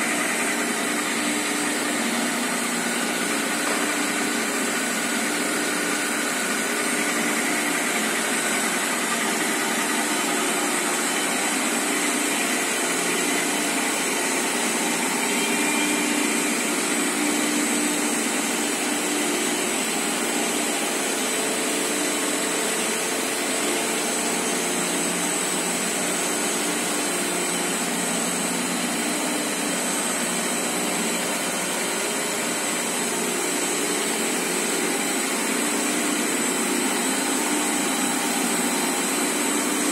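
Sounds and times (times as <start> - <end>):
paper slitting machine running: 0.0 - 39.9.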